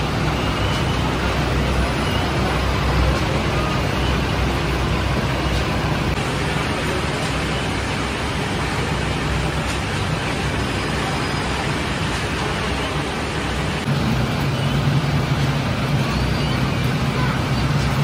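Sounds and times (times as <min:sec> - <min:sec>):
dough sheeting machinery running: 0:00.0 - 0:18.0.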